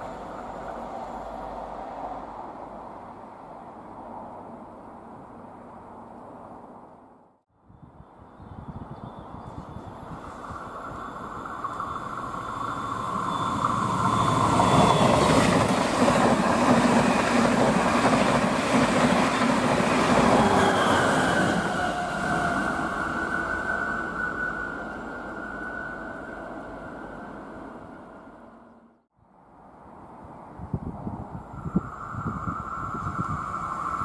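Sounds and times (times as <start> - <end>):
diesel train passing at speed: 0.0 - 6.8, 7.9 - 34.0
wheels rumbling on rails: 8.6 - 28.9, 30.2 - 34.0.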